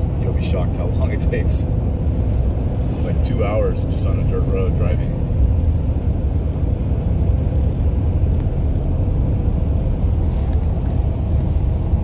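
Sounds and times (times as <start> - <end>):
road and engine rumble in car: 0.0 - 12.0.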